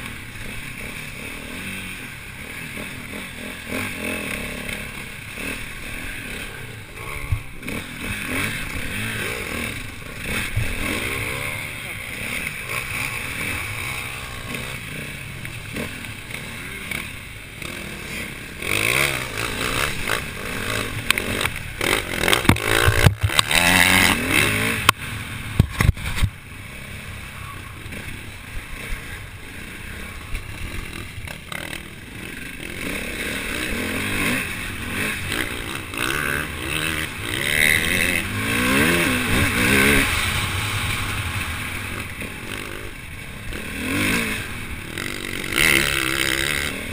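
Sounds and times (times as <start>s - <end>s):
motorcycle engine revving: 0.0s - 46.9s
bike knocking and rattling: 18.6s - 26.5s.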